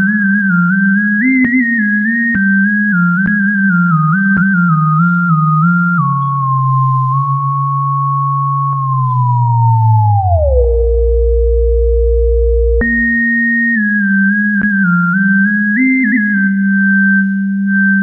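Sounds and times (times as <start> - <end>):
whistle-like synthesizer lead: 0.0 - 18.0
low synthesizer note: 4.5 - 13.7.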